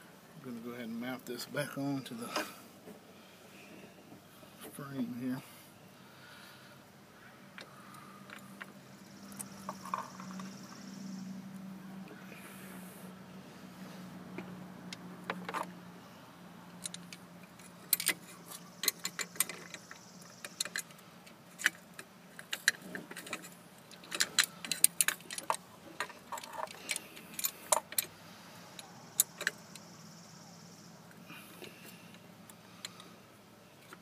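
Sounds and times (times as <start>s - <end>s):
metal parts clicking and clinking: 16.8s - 28.1s.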